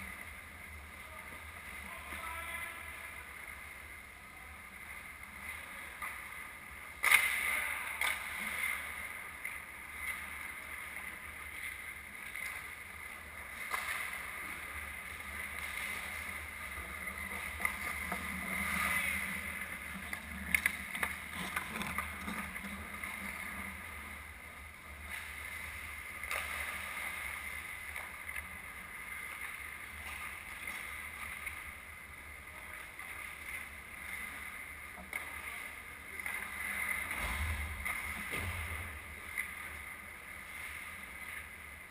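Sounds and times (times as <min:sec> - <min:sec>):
sharp knocks of sticks and puck: 0:07.0 - 0:08.3
skate blades scraping ice: 0:13.6 - 0:23.9.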